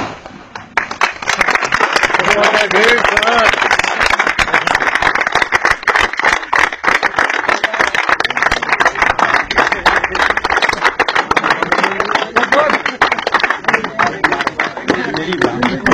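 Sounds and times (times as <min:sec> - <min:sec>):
crowd clapping: 0:00.5 - 0:15.9
voices: 0:07.5 - 0:15.9.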